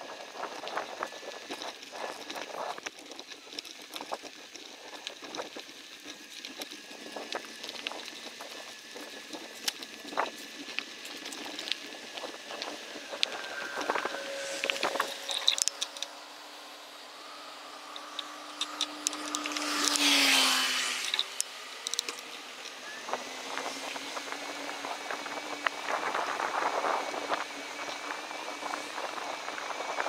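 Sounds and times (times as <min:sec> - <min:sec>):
bicycle rattling on trail: 0:00.0 - 0:30.0
rushing noise: 0:12.0 - 0:27.1.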